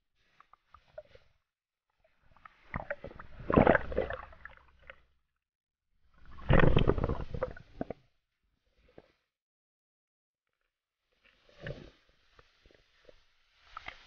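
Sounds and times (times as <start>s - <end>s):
muffled underwater gurgling: 6.2s - 8.0s.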